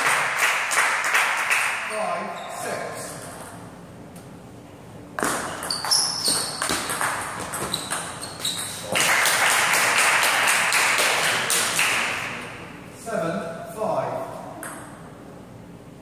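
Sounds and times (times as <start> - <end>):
spectators applauding: 0.0 - 1.9, 8.8 - 12.4.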